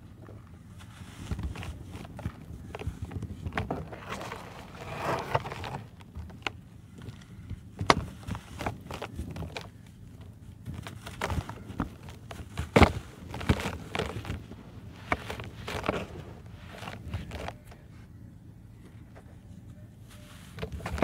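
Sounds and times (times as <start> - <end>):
brick pieces crunching in hands: 10.6 - 17.6.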